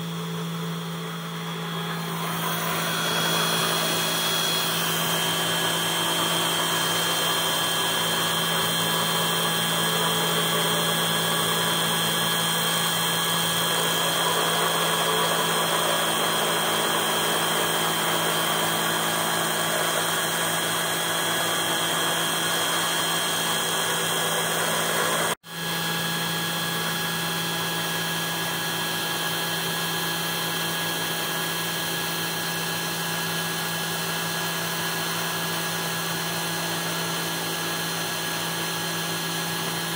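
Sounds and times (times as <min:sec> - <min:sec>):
engraver spindle whine: 0:00.0 - 0:28.2
end mill cutting metal: 0:01.2 - 0:25.4.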